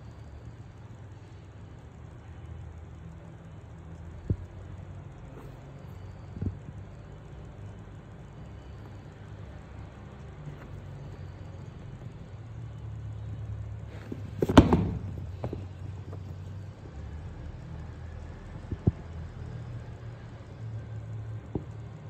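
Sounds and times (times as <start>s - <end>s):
sneaker handling noise: 13.9s - 16.5s
shoe knock and clicks: 14.0s - 16.4s.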